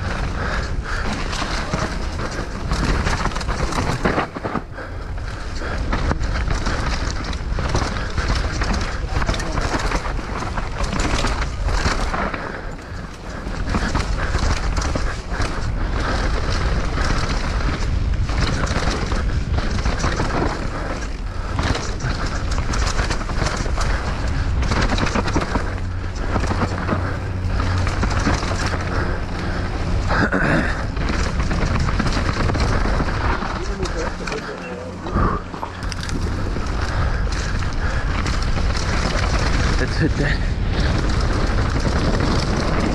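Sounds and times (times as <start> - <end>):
bike knocking and rattling: 0.0 - 42.9
wind and tyre noise: 0.0 - 42.9.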